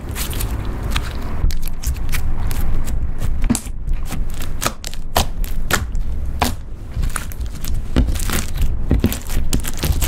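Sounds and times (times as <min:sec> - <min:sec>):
sticky slime pops and crackles: 0:03.4 - 0:10.0.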